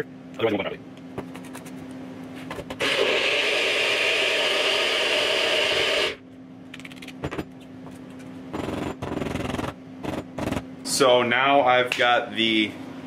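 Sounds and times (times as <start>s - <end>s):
blender crushing ice: 2.8s - 6.2s.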